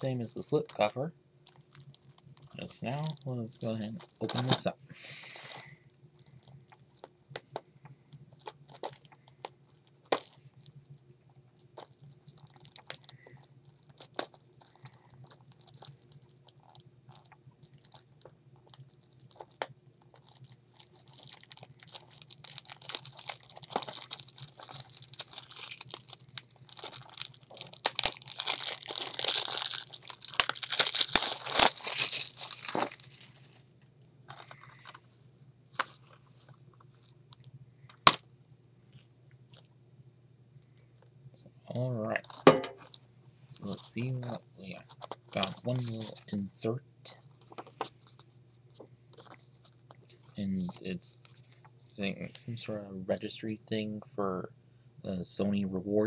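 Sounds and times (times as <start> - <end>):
cellophane crinkling and tearing: 0.0 - 7.5, 8.3 - 11.0, 11.6 - 35.0, 35.7 - 38.2, 42.2 - 46.3, 47.3 - 51.7
fingers picking at plastic wrap: 18.6 - 33.4.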